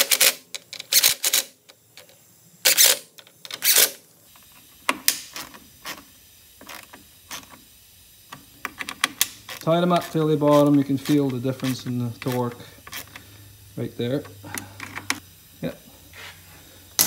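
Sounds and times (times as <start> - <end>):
socket ratchet clicking: 0.0 - 1.8, 2.7 - 4.0.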